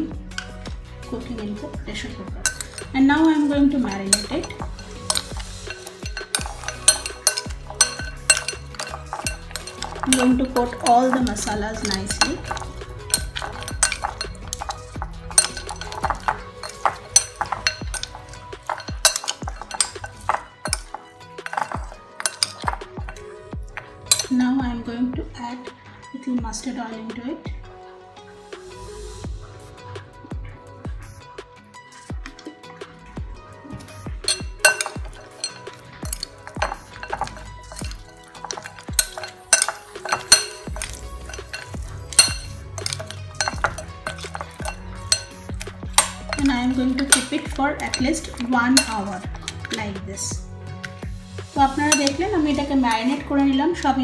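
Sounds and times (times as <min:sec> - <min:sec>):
fork clinking against glass bowl: 0:00.3 - 0:00.6, 0:02.4 - 0:03.0, 0:03.8 - 0:24.4, 0:33.7 - 0:49.8, 0:51.9 - 0:53.2.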